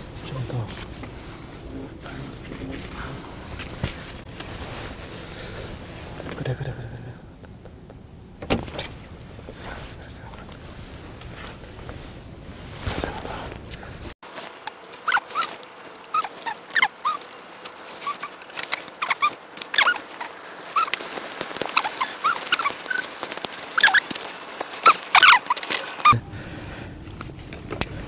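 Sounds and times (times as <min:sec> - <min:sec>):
dog whimpering: 0:15.1 - 0:17.2, 0:18.0 - 0:18.3, 0:19.0 - 0:21.0, 0:21.7 - 0:23.0.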